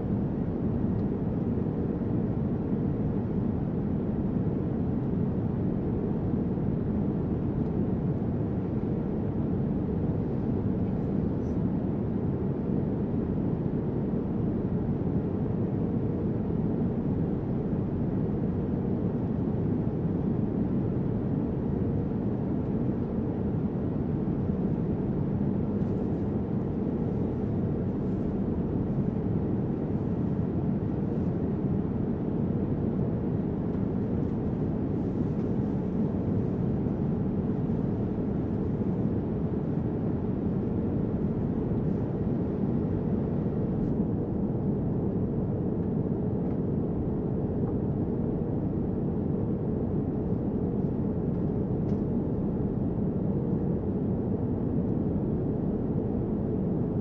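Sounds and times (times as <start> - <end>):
airliner cabin drone: 0.0 - 57.0.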